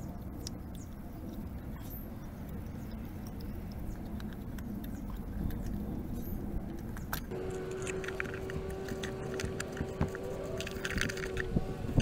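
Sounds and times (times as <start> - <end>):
low rumble: 0.0 - 12.0
steady hum with held tones: 0.0 - 12.0
small metallic clicks and rattles: 6.7 - 12.0.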